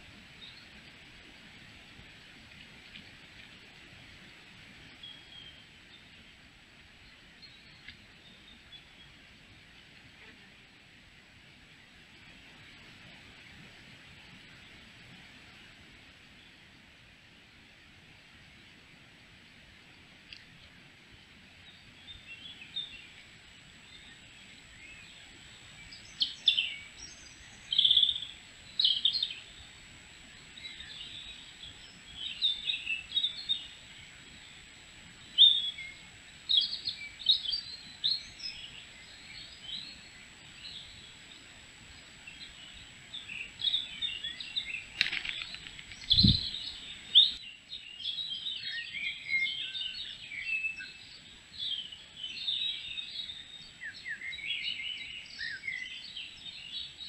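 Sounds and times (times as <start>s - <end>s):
songbirds chirping: 0.0s - 10.6s, 11.5s - 57.0s.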